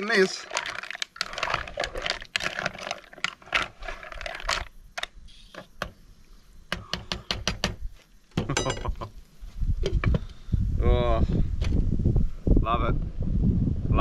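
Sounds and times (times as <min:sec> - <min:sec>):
mussels clattering in a pot: 0:00.0 - 0:04.8.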